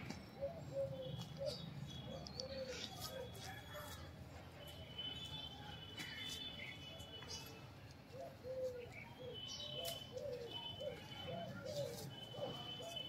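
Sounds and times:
birds chirping and whistling: 0:08.2 - 0:13.0.

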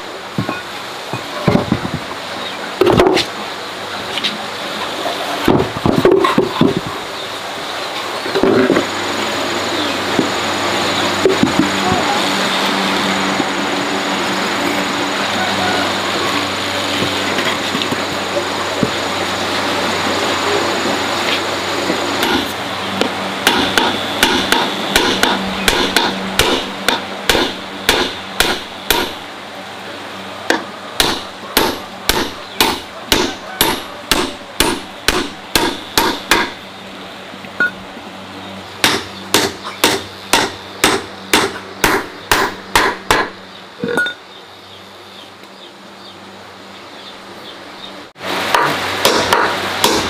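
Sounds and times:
hammer striking: 0:22.2 - 0:22.5, 0:23.4 - 0:29.2, 0:30.5 - 0:36.6, 0:38.8 - 0:44.2, 0:48.5 - 0:50.0.

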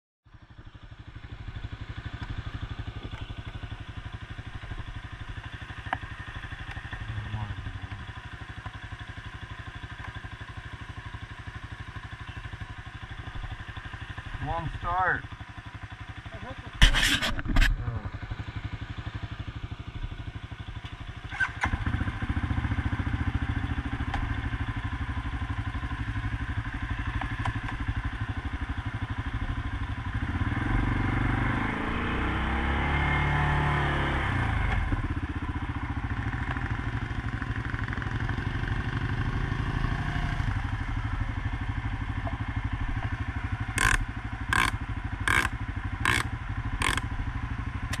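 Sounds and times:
quad engine revving: 0:21.2 - 0:24.4, 0:30.1 - 0:40.9, 0:43.5 - 0:48.0.

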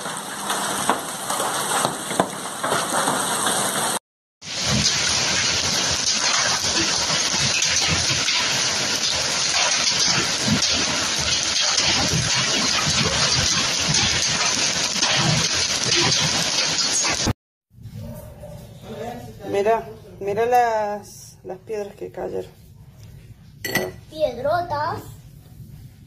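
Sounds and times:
hailstones clattering: 0:00.0 - 0:17.2.

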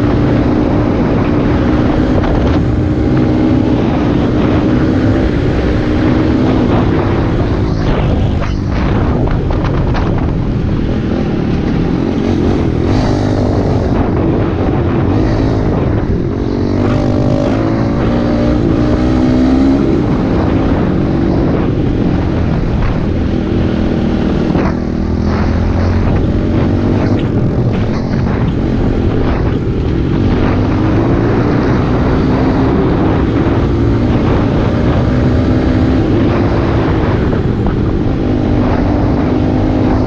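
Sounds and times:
wind on microphone: 0:00.0 - 0:40.0
dirt bike engine revving: 0:11.1 - 0:22.3.

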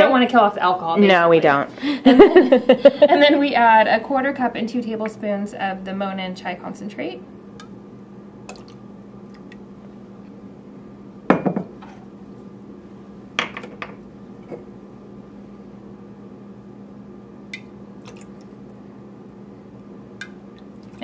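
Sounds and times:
steady low hum: 0:00.0 - 0:21.0.

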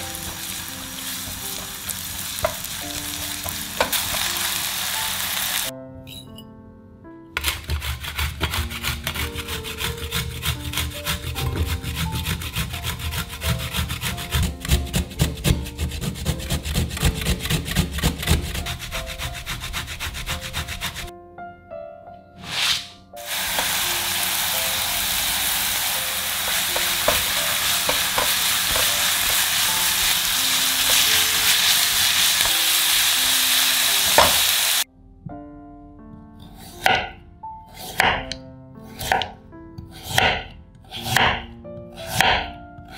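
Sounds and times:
steady hiss: 0:00.0 - 0:05.7, 0:23.2 - 0:34.8
knife chopping on cutting board: 0:07.4 - 0:21.0, 0:36.7 - 0:37.2, 0:37.8 - 0:38.4, 0:39.0 - 0:42.9
grater rasping: 0:07.4 - 0:21.1, 0:26.2 - 0:32.5.

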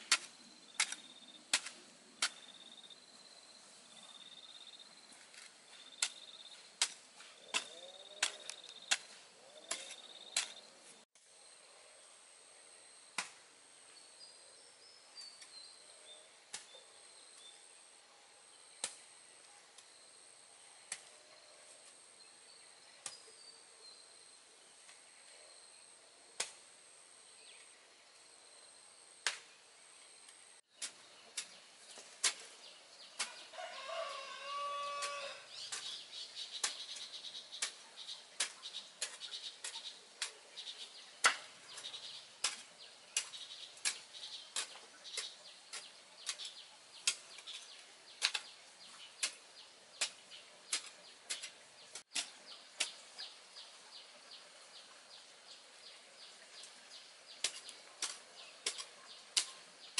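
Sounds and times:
hand tools striking soil and stones: 0:00.0 - 0:03.2, 0:04.2 - 0:11.0, 0:13.1 - 0:13.5, 0:16.4 - 0:16.7, 0:18.7 - 0:19.1, 0:20.8 - 0:22.0, 0:23.0 - 0:23.3, 0:26.4 - 0:26.6, 0:29.2 - 0:29.6, 0:30.7 - 0:53.8, 0:55.8 - 0:59.9
bird calling: 0:07.3 - 0:10.7.

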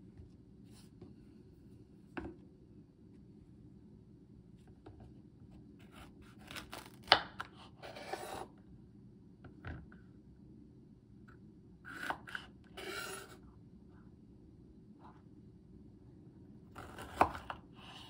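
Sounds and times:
knife cutting crisp pepper: 0:05.8 - 0:08.5, 0:11.9 - 0:13.4, 0:16.8 - 0:17.6.

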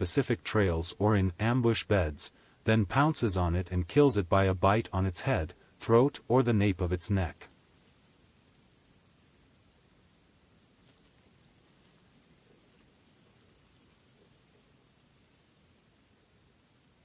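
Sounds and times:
faint steady hiss: 0:00.0 - 0:17.0
faint high chirping: 0:07.3 - 0:17.0.

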